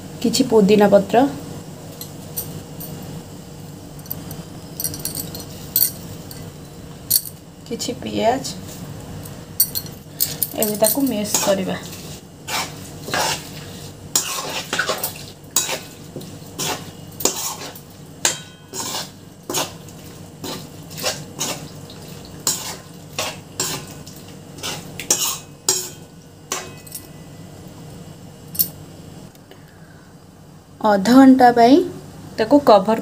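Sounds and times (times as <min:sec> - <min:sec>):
spoon clinking and scraping metal pan: 0:14.1 - 0:16.0, 0:16.6 - 0:19.8, 0:22.4 - 0:23.9, 0:24.6 - 0:27.2.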